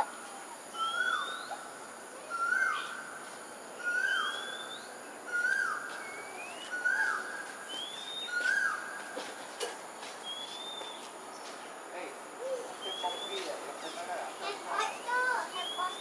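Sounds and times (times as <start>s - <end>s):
steady high-pitched hiss: 0.0s - 16.0s
higher thin rising bird whistle: 3.8s - 8.9s.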